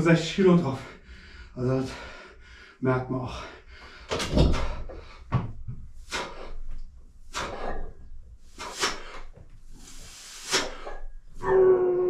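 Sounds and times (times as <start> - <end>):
person exhaling sharply: 7.3 - 7.8, 8.5 - 11.0.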